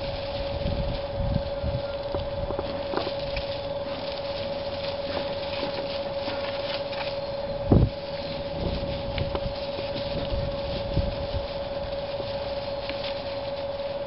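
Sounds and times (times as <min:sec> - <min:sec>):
steady hum: 0:00.0 - 0:14.0
wind rumbling on microphone: 0:00.0 - 0:14.0.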